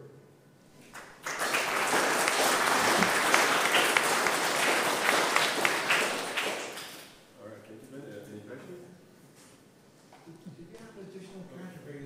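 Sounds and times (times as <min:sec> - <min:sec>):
audience applauding: 0:00.8 - 0:07.2.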